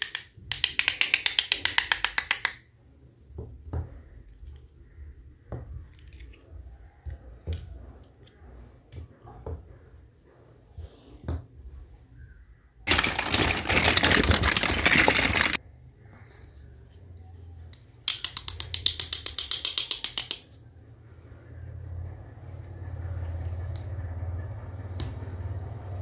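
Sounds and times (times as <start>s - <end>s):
plastic toy utensils rattling: 12.9s - 15.6s.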